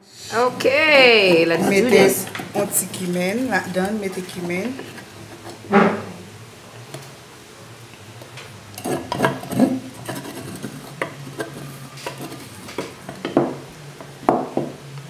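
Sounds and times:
metal spoon scraping and tapping: 0:01.4 - 0:05.6, 0:08.8 - 0:13.4.

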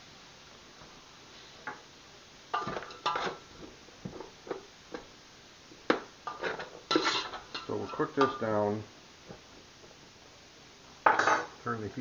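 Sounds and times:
spoon stirring onions: 0:02.5 - 0:05.1, 0:05.9 - 0:08.7
metal spoon scraping stockpot: 0:02.6 - 0:03.4, 0:06.3 - 0:08.4.

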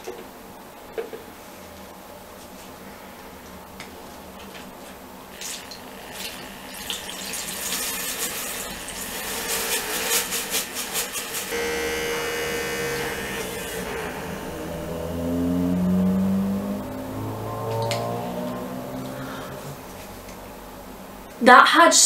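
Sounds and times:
brush spinner motor whirring: 0:05.4 - 0:16.4.

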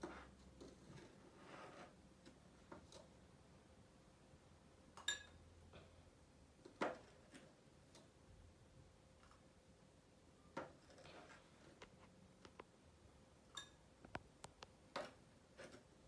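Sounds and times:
spoon clinking against glass: 0:05.0 - 0:05.4, 0:13.6 - 0:13.8.

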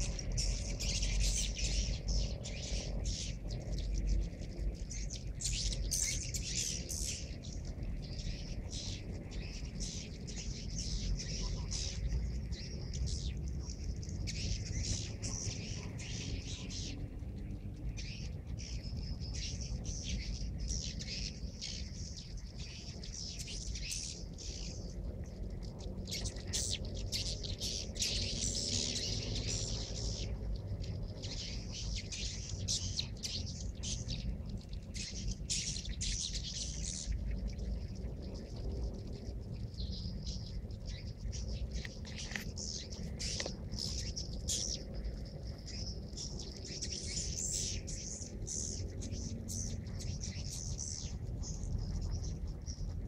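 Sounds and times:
steady low rumble: 0:00.0 - 0:53.0.

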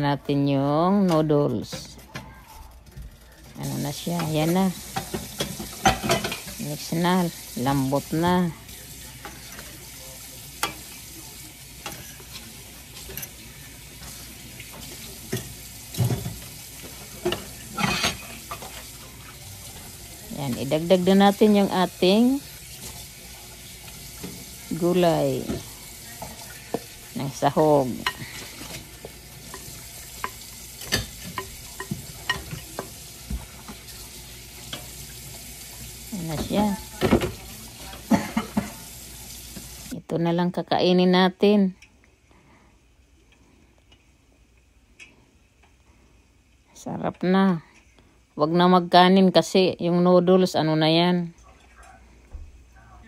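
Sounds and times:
faint sizzle: 0:00.0 - 0:53.0
utensils clattering: 0:00.9 - 0:35.6
metal utensils scraping a pan: 0:03.4 - 0:06.9, 0:11.7 - 0:19.4, 0:23.8 - 0:33.0.

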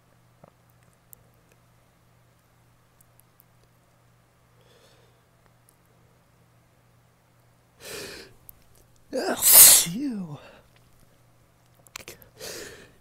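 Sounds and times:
sharp breath in: 0:09.2 - 0:10.1
man sneezing: 0:09.2 - 0:10.6.

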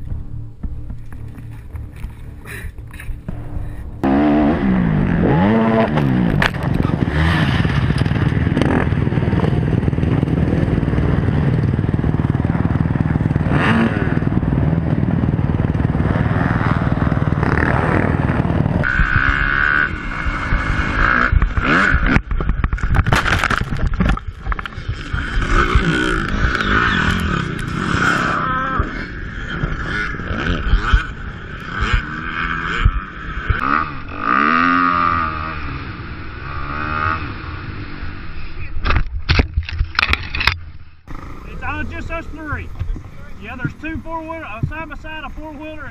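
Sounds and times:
dirt bike engines running hard: 0:00.0 - 0:45.9
knocks and scraping clatter: 0:21.3 - 0:28.1, 0:38.8 - 0:41.1.

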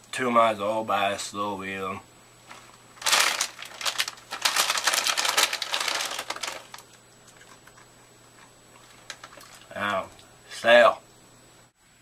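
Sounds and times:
chip bag crinkling: 0:02.4 - 0:10.2.

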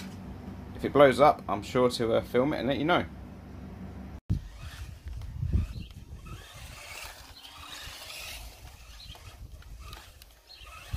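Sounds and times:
rc car motor running: 0:04.3 - 0:10.9
wind rumbling on microphone: 0:04.3 - 0:10.9.

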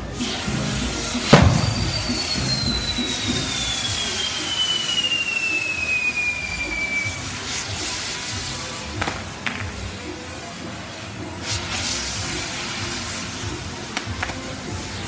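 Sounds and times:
fireworks hissing: 0:00.0 - 0:15.0
falling firework whistle: 0:00.1 - 0:09.2
firework bang: 0:00.2 - 0:09.7.

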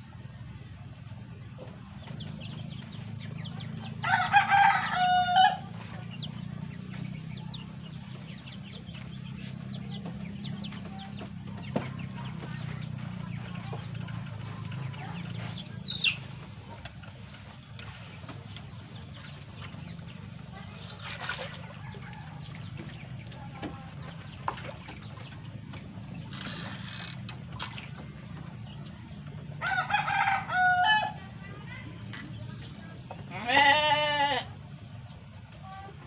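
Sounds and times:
low background hum: 0:00.0 - 0:36.0
rooster crowing: 0:04.0 - 0:05.7, 0:29.6 - 0:31.2.

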